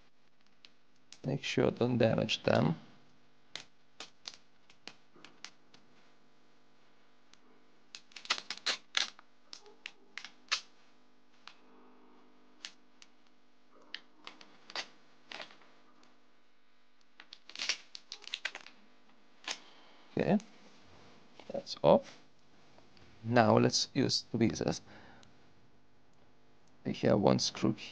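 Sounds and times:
plastic film peeling crackles: 0:03.6 - 0:05.9, 0:08.0 - 0:10.7, 0:13.9 - 0:15.6, 0:17.1 - 0:18.8, 0:19.4 - 0:19.7.

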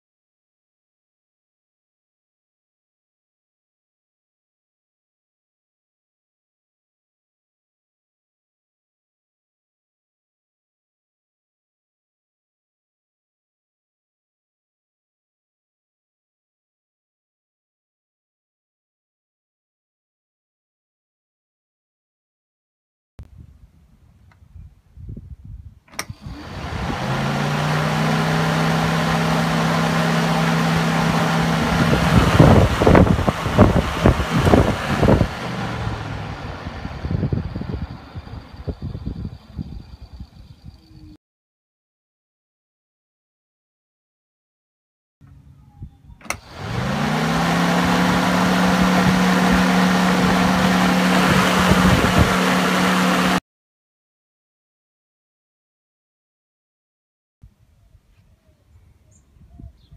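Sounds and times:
wind buffeting microphone: 0:23.2 - 0:27.5, 0:31.1 - 0:41.1, 0:48.1 - 0:52.5, 0:59.0 - 0:59.9
fan switch click: 0:25.9 - 0:26.3, 0:46.2 - 0:46.5
radiator fan humming: 0:26.0 - 0:39.1, 0:45.4 - 0:53.4.

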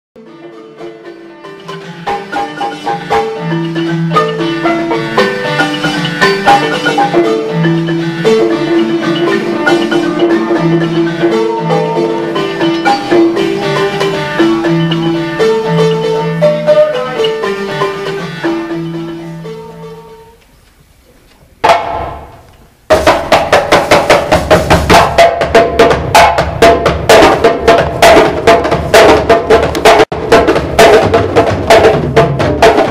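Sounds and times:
wooden xylophone melody: 0:00.2 - 0:20.4.

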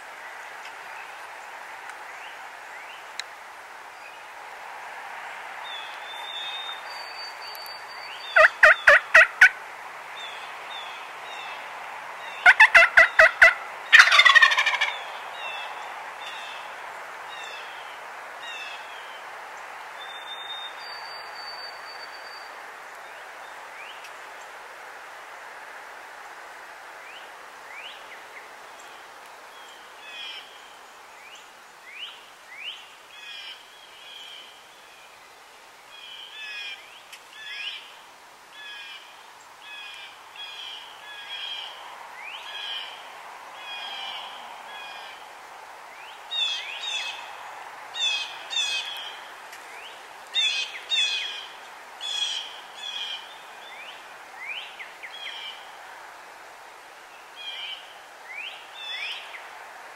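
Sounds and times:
outdoor background hiss: 0:00.0 - 0:59.9
birds chirping: 0:05.6 - 0:09.5.

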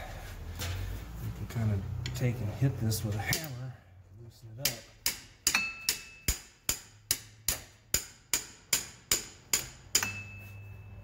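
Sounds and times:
hammer striking wrench: 0:04.6 - 0:10.8.

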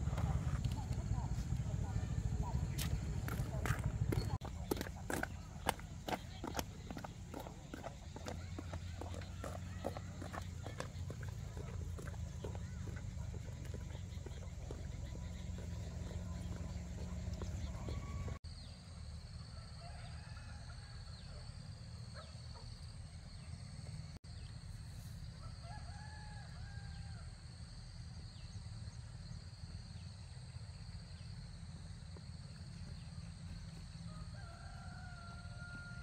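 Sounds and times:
roosters crowing: 0:25.4 - 0:27.3, 0:34.1 - 0:36.0.

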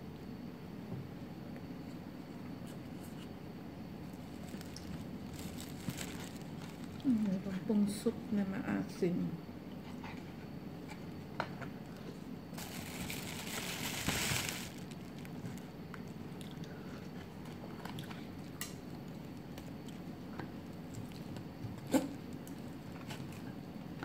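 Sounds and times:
rustling: 0:04.1 - 0:07.2, 0:12.5 - 0:15.6
chewing: 0:16.3 - 0:18.7, 0:19.6 - 0:22.6.

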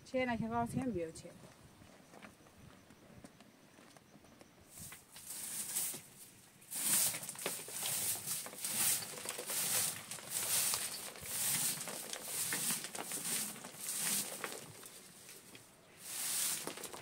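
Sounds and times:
twig broom sweeping dirt floor: 0:04.7 - 0:17.0.

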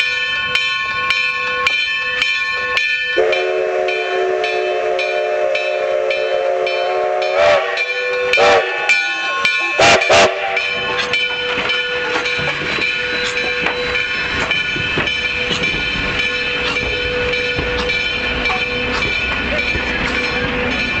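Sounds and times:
steam train rolling past: 0:00.0 - 0:21.0.

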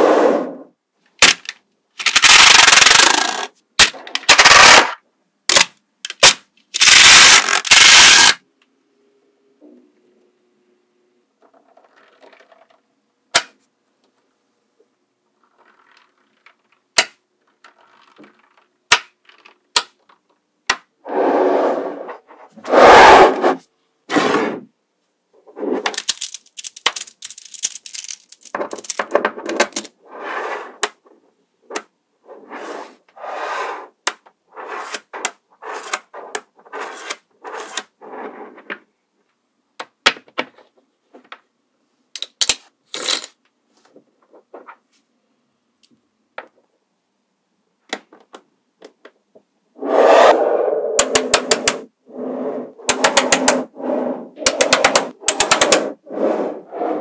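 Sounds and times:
magnetic balls rattling and rolling: 0:01.3 - 0:05.0, 0:11.4 - 0:13.0, 0:15.3 - 0:20.4, 0:25.6 - 0:31.9, 0:52.8 - 0:53.8, 0:54.4 - 0:56.0
magnetic balls clicking together: 0:25.9 - 0:29.9, 0:51.0 - 0:51.9, 0:52.8 - 0:53.7, 0:54.4 - 0:56.0.

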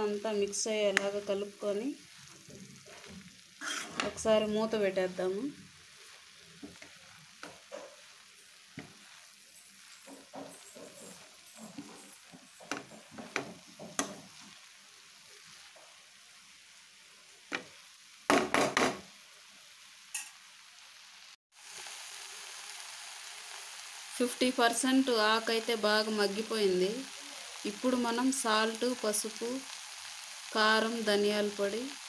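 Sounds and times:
vegetables sizzling in a pan: 0:00.0 - 0:32.0
utensil scraping and clinking pan: 0:03.0 - 0:04.2, 0:06.7 - 0:14.3.

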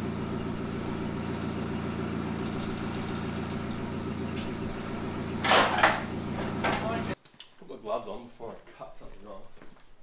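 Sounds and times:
forklift engine idling: 0:00.0 - 0:07.2.

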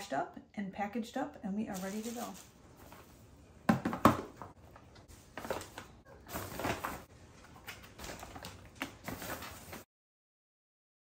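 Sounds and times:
crinkling and rustling plastic: 0:01.7 - 0:03.3, 0:04.0 - 0:09.9.

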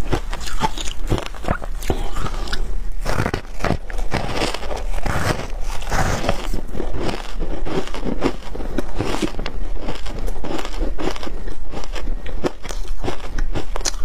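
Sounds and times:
chewing crunchy ice: 0:00.0 - 0:14.0.

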